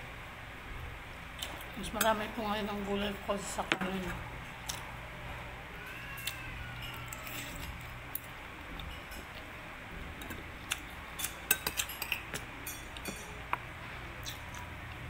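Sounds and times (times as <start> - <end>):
cutlery clinking on plate: 11.2 - 13.4.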